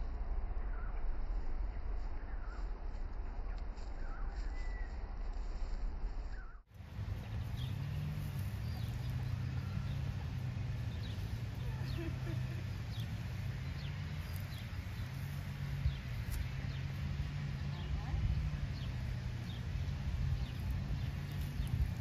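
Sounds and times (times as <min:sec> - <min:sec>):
steady low rumble: 0:00.0 - 0:22.0
faint bird chirps: 0:03.4 - 0:05.0.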